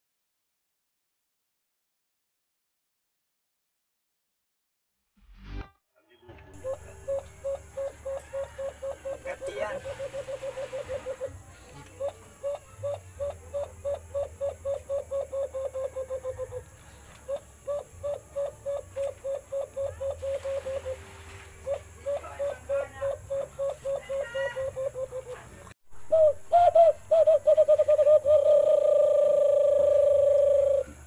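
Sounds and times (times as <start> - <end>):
cupped-hand bird call hooting: 6.6 - 31.0.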